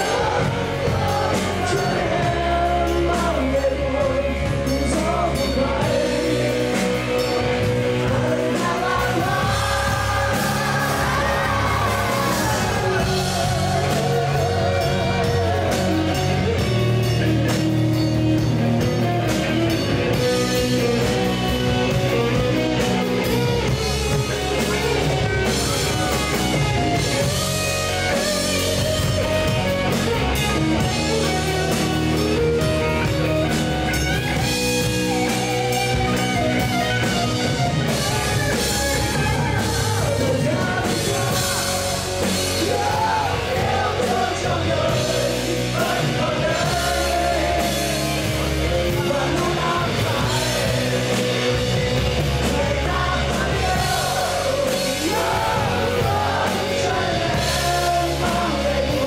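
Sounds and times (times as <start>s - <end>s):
live rock band: 0.0s - 59.0s
person singing: 0.0s - 59.0s.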